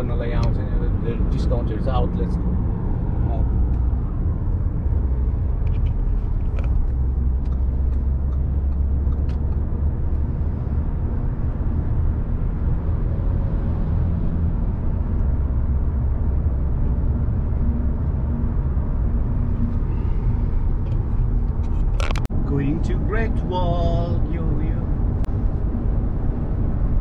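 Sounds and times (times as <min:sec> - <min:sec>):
car cabin road and engine rumble: 0:00.0 - 0:27.0.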